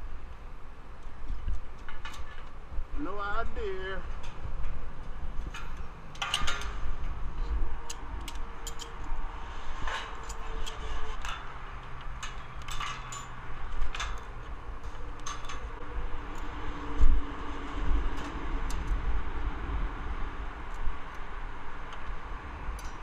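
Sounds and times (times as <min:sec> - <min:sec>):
wind rumble on microphone: 0:00.0 - 0:23.0
metallic clicks on steel frame: 0:04.1 - 0:07.2, 0:07.8 - 0:09.2, 0:09.8 - 0:17.1, 0:20.7 - 0:23.0.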